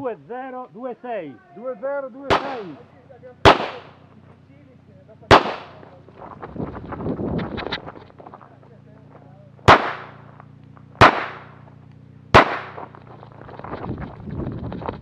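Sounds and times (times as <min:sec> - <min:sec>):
pistol shots: 0:02.3 - 0:02.8, 0:03.4 - 0:04.1, 0:05.3 - 0:05.8, 0:09.6 - 0:10.3, 0:11.0 - 0:13.0.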